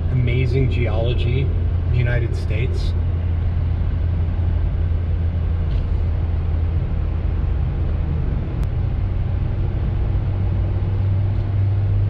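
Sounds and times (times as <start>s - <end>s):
car engine and tyre drone: 0.0s - 12.0s.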